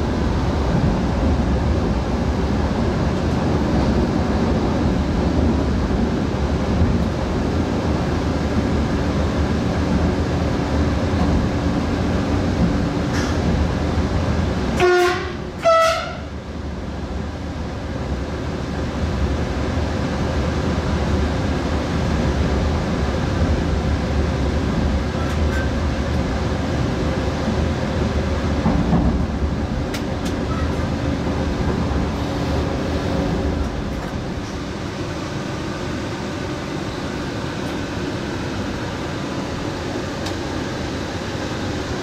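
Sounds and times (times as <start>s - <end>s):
train rumbling along track: 0.0s - 42.0s
train horn blasts: 14.8s - 16.3s.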